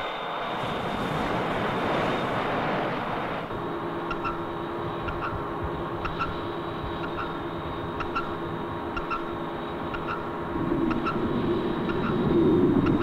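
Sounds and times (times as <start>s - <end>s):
steady underwater hum: 0.0s - 13.0s.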